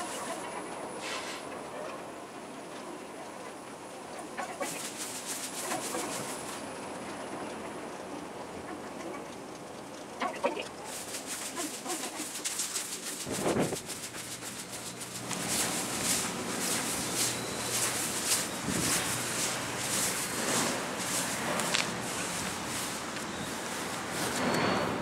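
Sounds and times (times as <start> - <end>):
fast-forwarded audio chirps: 10.2 - 24.4
footsteps on paving stones: 10.6 - 24.8.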